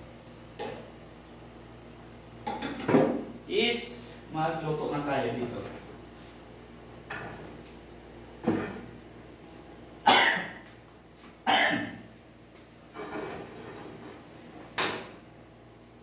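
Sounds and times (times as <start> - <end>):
man coughing: 10.0 - 10.6, 11.4 - 12.0.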